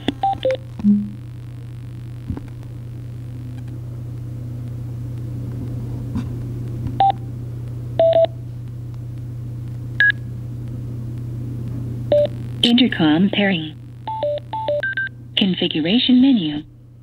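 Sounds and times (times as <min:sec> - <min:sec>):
steady low hum: 0:00.0 - 0:17.0
headset beeps: 0:00.2 - 0:01.2, 0:14.1 - 0:15.1.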